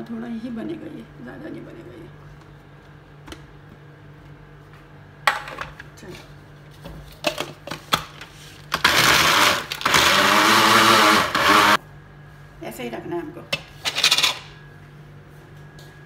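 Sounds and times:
food chopper motor running: 8.7 - 11.8.

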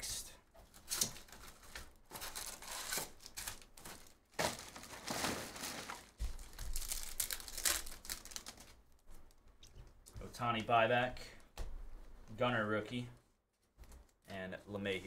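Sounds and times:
wrapper crinkling and tearing: 0.8 - 9.0.

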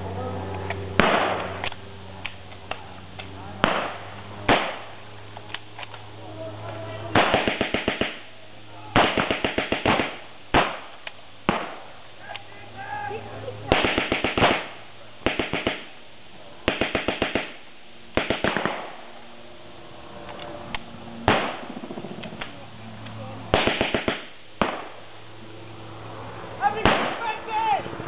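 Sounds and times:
single sharp gunshot: 1.0 - 1.6, 3.6 - 4.9, 9.0 - 11.9, 13.7 - 15.9, 18.2 - 19.0, 21.3 - 21.8, 23.5 - 25.0, 26.8 - 27.3
machine gun bursts: 16.7 - 17.6.

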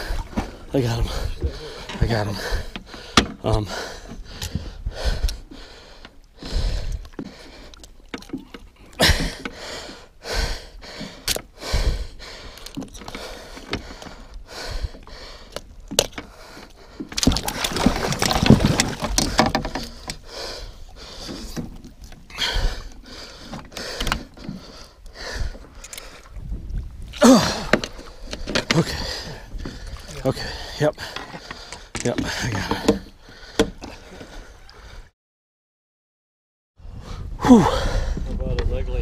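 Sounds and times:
thumps and knocks on boat: 0.3 - 4.8, 17.0 - 20.2, 31.1 - 34.3
rush of water: 17.2 - 19.9.

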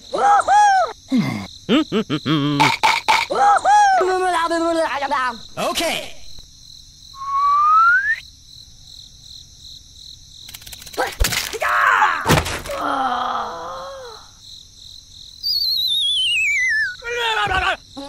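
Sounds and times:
cartoon rising whistle: 7.2 - 8.2, 15.4 - 17.0
long falling whistle: 7.2 - 8.2, 15.4 - 17.0
cartoon character groaning voice: 11.9 - 14.3.

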